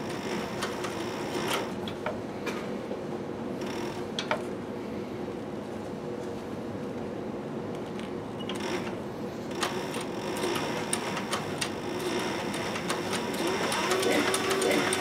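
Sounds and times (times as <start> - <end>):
sewing machine motor humming: 0.0 - 1.8, 8.5 - 15.0.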